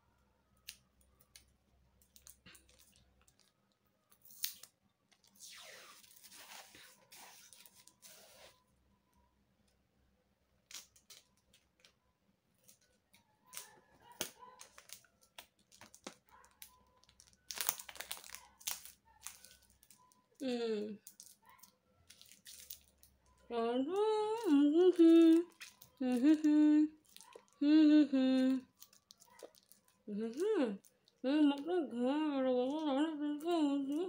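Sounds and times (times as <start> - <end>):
small clicks and crinkles: 0.1 - 5.4, 6.0 - 9.8, 10.6 - 27.6, 28.4 - 31.2
packing tape pulled off roll: 4.2 - 8.6, 17.0 - 20.0.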